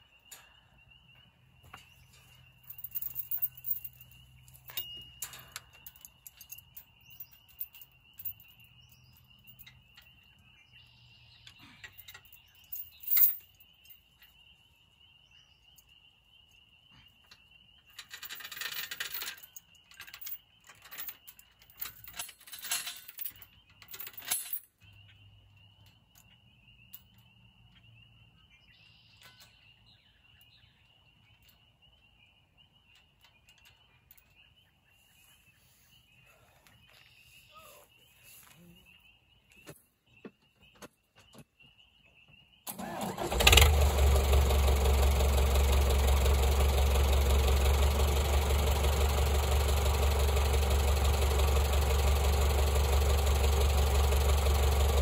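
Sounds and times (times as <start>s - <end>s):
metal tools clinking and knocking: 0.0s - 10.4s, 11.4s - 14.4s, 17.2s - 25.2s.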